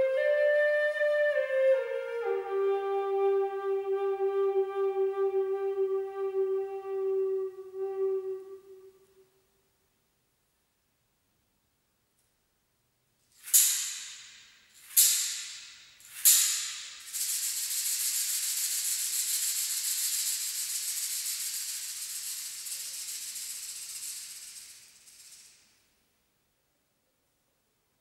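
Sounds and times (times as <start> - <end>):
hand rattle shaking: 13.3 - 25.9.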